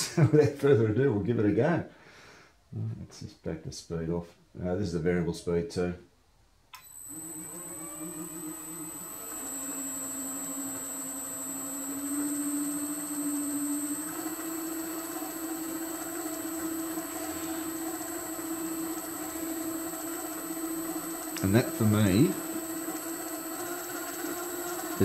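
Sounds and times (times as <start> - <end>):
electric motor humming: 6.8 - 25.0
high-pitched drive whine: 6.8 - 25.0.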